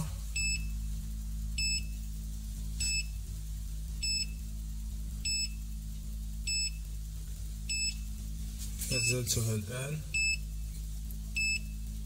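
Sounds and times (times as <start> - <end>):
ground scanner beeping: 0.0 - 0.8, 1.6 - 2.0, 5.2 - 5.6, 7.7 - 8.1, 8.9 - 10.6, 11.4 - 11.8
low steady hum: 0.0 - 12.0.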